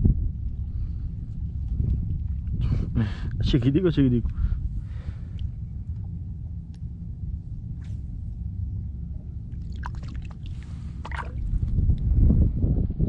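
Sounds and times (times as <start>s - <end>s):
low rumble: 0.0s - 13.0s
small splashes and drips: 9.5s - 11.6s
water sloshing around legs: 9.5s - 11.8s.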